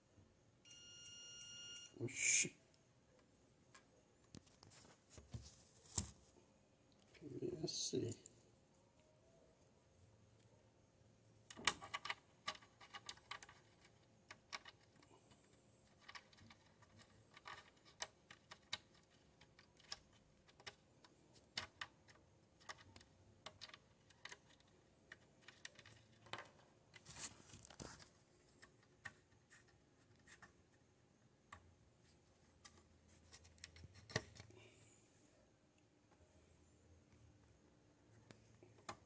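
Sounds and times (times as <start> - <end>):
rustle of phone handling: 4.3 - 6.4, 27.0 - 28.2.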